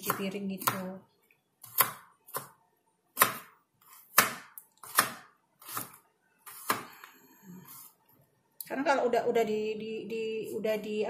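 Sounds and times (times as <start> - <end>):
knife cutting on plastic board: 0.0 - 0.9, 1.6 - 7.0.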